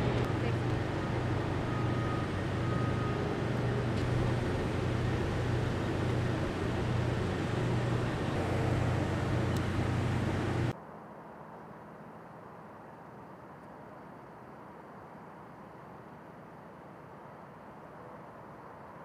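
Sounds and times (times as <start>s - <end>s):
diesel engines idling: 0.0s - 10.7s.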